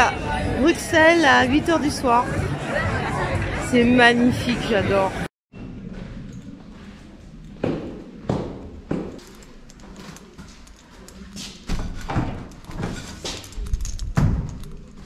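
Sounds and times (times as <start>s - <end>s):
footsteps on stairs and hallway: 5.9s - 15.0s.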